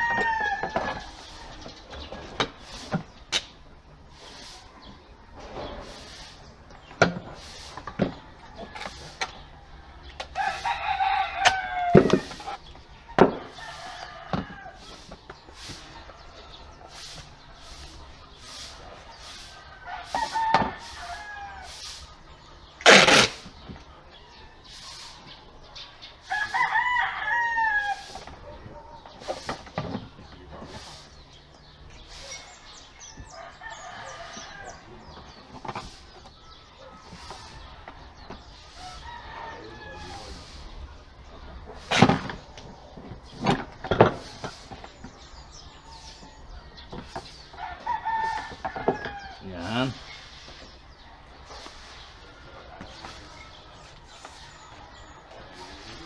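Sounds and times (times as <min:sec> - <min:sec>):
rooster crowing: 0:00.0 - 0:01.2, 0:10.4 - 0:12.3, 0:19.8 - 0:21.8, 0:26.2 - 0:28.2, 0:33.1 - 0:35.1, 0:38.7 - 0:40.6, 0:47.6 - 0:49.5.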